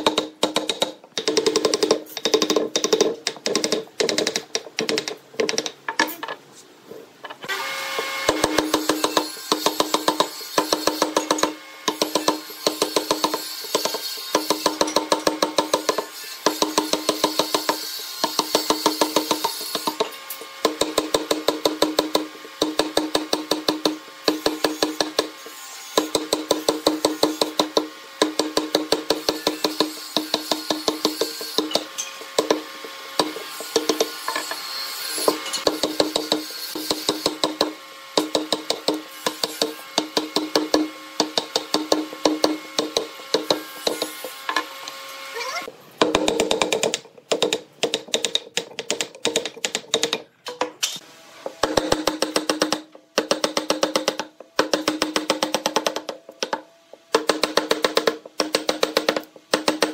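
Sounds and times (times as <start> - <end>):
mallet striking chisel into wood: 0.0 - 6.1, 8.2 - 25.4, 26.0 - 34.6, 35.2 - 44.6, 46.0 - 50.8, 51.6 - 59.9.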